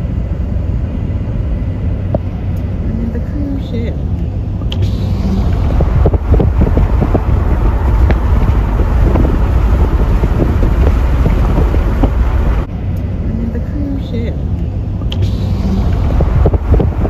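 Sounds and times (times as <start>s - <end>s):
wind buffeting microphone: 4.4s - 12.7s, 14.9s - 17.0s.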